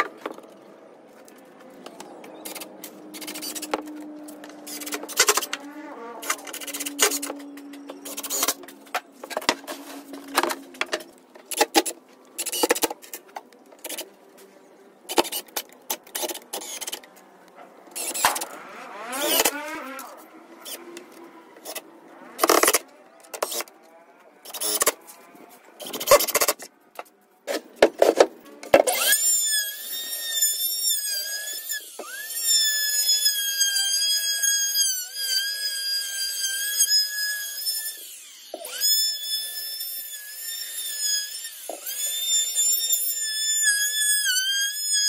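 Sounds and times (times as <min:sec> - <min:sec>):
cordless drill driving screws: 0:17.9 - 0:21.8, 0:22.4 - 0:23.7.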